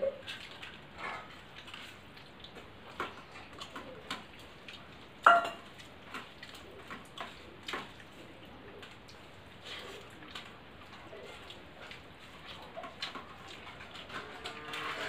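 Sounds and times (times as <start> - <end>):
utensils clinking on steel plates: 5.2 - 5.7.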